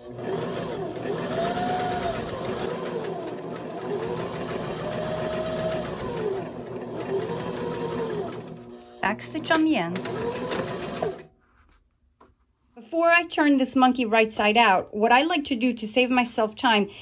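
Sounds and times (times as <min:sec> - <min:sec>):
sewing machine stitching: 0:00.0 - 0:11.3.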